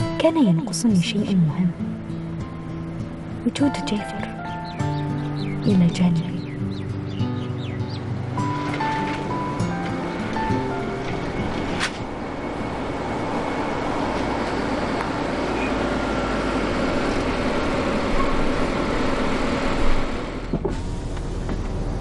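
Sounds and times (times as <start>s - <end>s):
car driving up: 6.4s - 22.0s.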